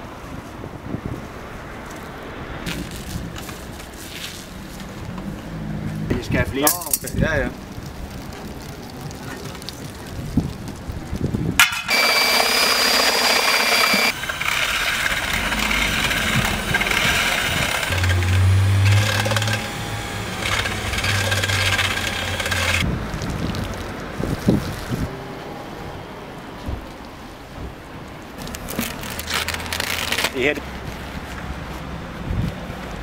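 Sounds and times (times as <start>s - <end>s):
paint roller on asphalt: 1.9s - 5.5s, 7.3s - 25.1s, 28.4s - 32.9s.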